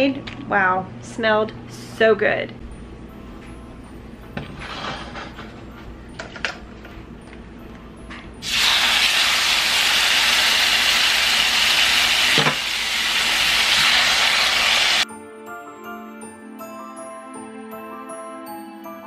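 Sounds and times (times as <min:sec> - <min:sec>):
chicken sizzling in a pan: 0:08.4 - 0:15.0.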